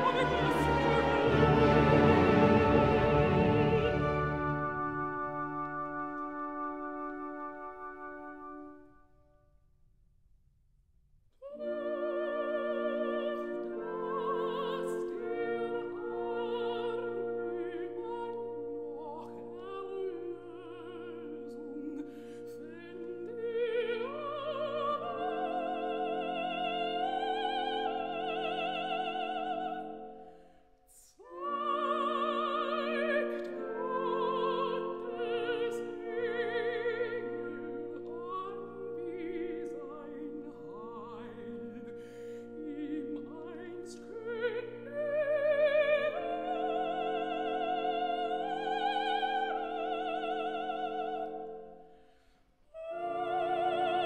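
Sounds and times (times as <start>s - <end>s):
operatic soprano singing: 0.0s - 8.7s, 11.4s - 51.9s, 52.7s - 54.0s
orchestra playing: 0.0s - 8.8s, 31.4s - 51.5s.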